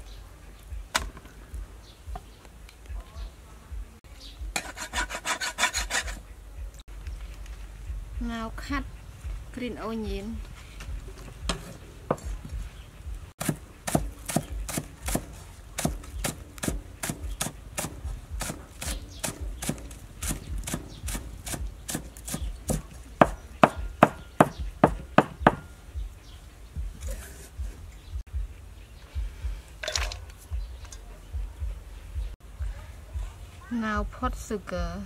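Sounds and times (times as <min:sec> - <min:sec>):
cleaver chopping on wooden block: 0:13.4 - 0:25.7.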